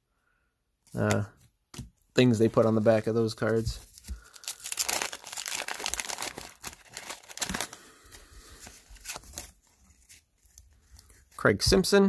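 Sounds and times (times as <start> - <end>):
paper wrapper crinkling and tearing: 2.4 - 11.4.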